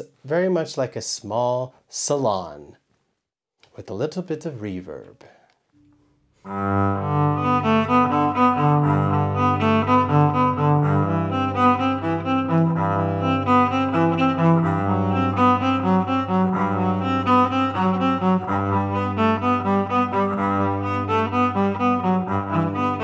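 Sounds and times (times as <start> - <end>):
bowed electric cello melody: 6.5 - 23.0.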